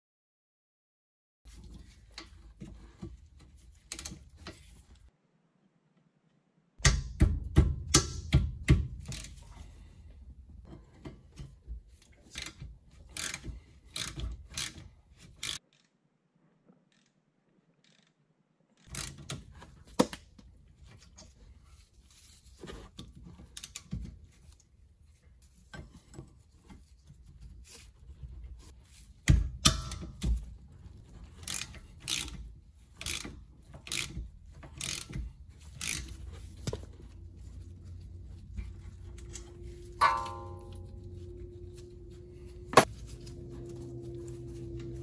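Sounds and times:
ratchet clicking: 9.0 - 9.5, 12.3 - 14.8, 15.4 - 15.9, 18.8 - 19.3, 31.4 - 32.4, 33.0 - 36.7
short metallic ring: 39.6 - 42.8.

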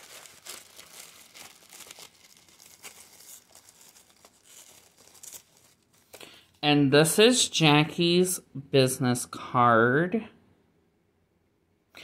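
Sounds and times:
paper tearing: 0.0 - 6.2
tissue paper crinkling: 0.0 - 6.6.

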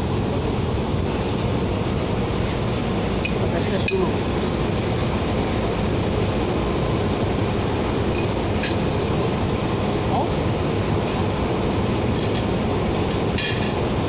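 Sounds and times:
ship engines droning: 0.0 - 14.0.

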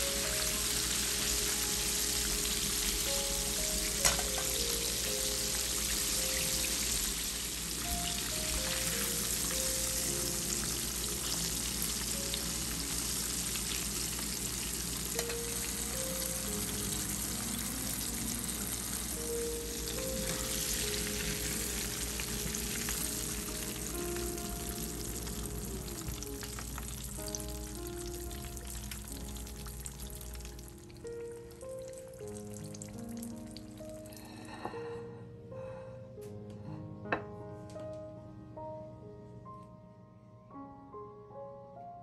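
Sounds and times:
chicken deep-frying in oil: 0.0 - 31.4.

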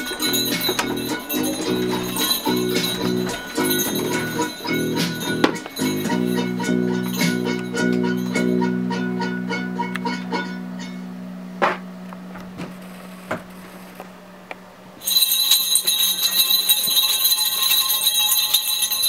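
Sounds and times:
bells jingling: 0.0 - 11.0, 15.0 - 19.0.

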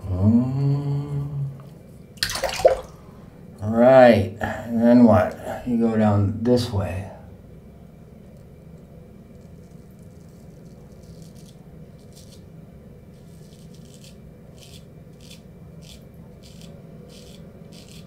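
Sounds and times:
low steady hum: 0.0 - 18.0
straight razor scraping stubble: 9.3 - 12.5, 13.1 - 18.0.

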